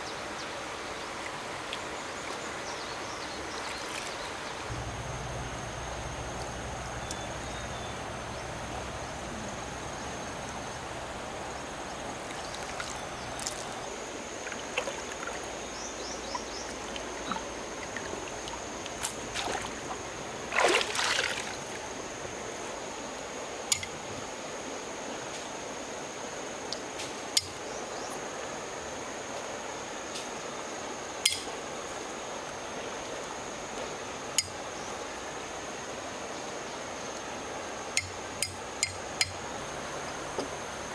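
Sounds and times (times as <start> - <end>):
water trickling: 3.5 - 22.2
water splash: 16.7 - 21.9.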